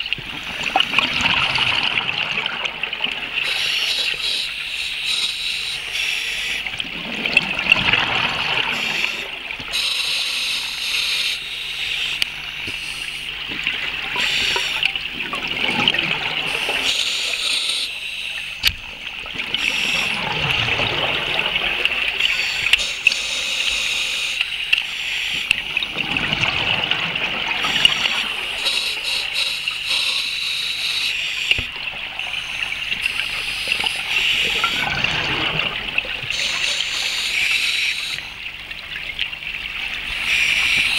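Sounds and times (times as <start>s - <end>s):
regulator bubbles gurgling: 0.0s - 40.9s
steady hiss: 36.2s - 38.4s.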